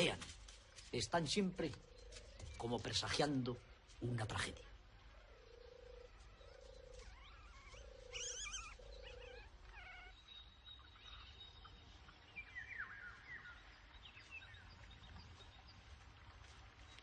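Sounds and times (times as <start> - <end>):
low bird call: 5.2 - 13.6
bird chirps: 5.3 - 16.0.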